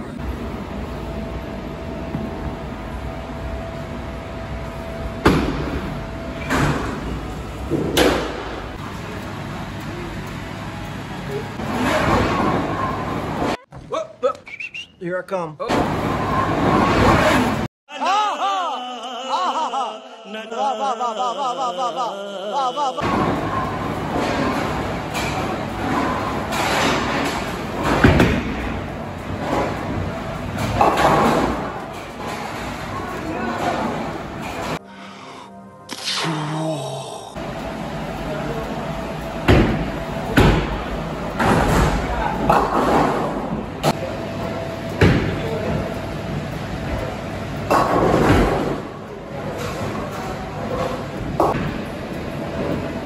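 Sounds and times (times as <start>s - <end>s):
bowling alley din: 20.5s - 36.3s.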